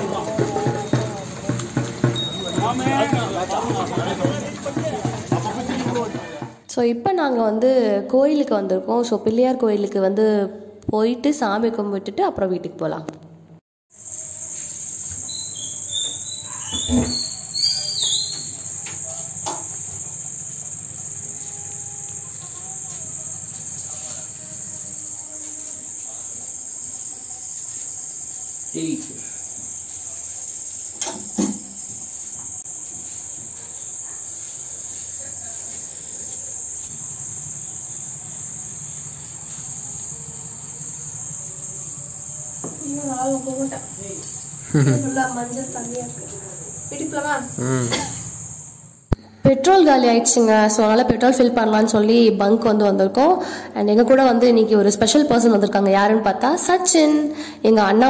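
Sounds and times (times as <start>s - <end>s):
crickets chirring: 0.0s - 6.5s, 13.9s - 58.0s
squeaky sliding sound: 15.1s - 18.7s.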